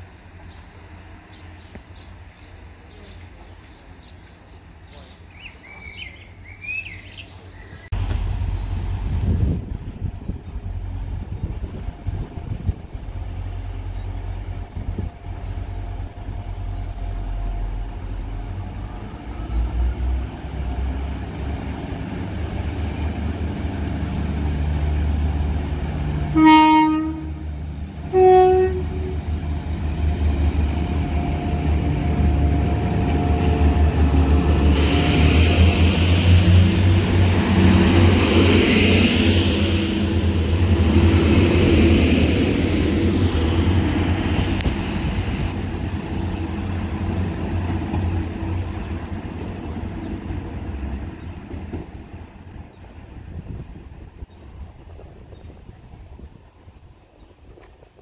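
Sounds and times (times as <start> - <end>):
diesel train engines rumbling: 0.0 - 58.0
two-tone train horn: 26.3 - 29.3
train wheel noise: 27.2 - 56.3.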